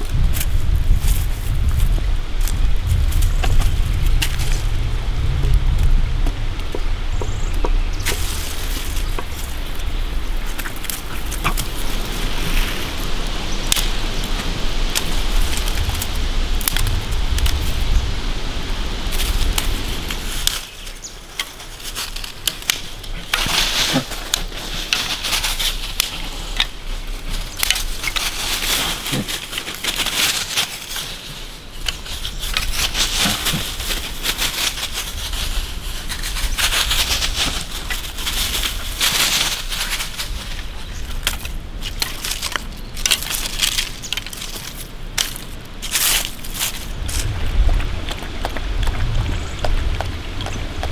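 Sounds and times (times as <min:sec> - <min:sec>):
dry leaves crunching: 0:00.0 - 0:50.9
dry sticks snapping: 0:07.5 - 0:17.7, 0:19.1 - 0:31.2, 0:31.8 - 0:35.3, 0:36.0 - 0:49.0.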